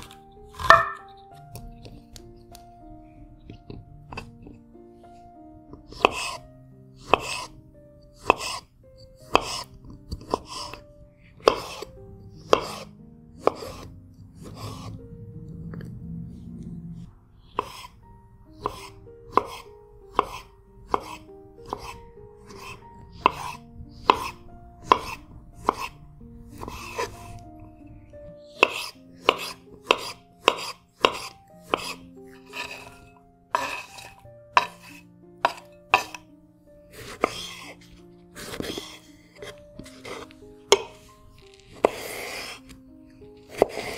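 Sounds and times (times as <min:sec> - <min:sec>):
soft background music: 0:00.0 - 0:43.9
knife tapping cutting board: 0:00.6 - 0:01.0, 0:23.2 - 0:25.9, 0:28.6 - 0:32.0
knife scraping through olive: 0:05.9 - 0:06.4, 0:07.0 - 0:07.6, 0:08.2 - 0:10.8, 0:11.4 - 0:11.9, 0:12.5 - 0:14.9, 0:17.5 - 0:18.0, 0:18.6 - 0:26.0, 0:26.6 - 0:27.3, 0:28.5 - 0:36.2, 0:36.9 - 0:42.8, 0:43.4 - 0:43.9.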